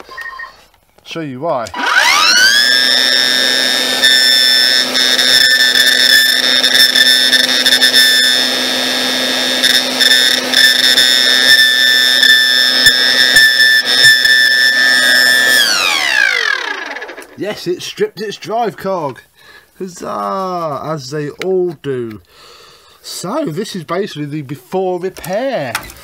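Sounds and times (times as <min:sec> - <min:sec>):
vacuum motor whine: 0:01.7 - 0:17.4.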